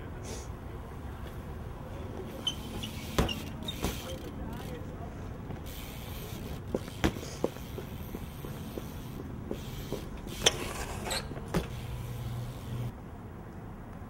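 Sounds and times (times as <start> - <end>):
bike tyres rolling on concrete: 0.8 - 13.0
bike knocking and clacking on landing: 2.4 - 4.8, 5.5 - 12.9.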